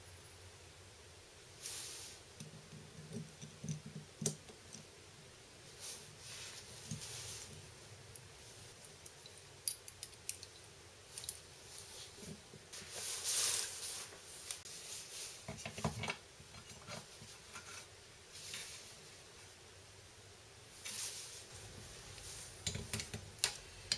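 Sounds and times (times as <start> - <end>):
small metal parts clinking: 8.2 - 11.5.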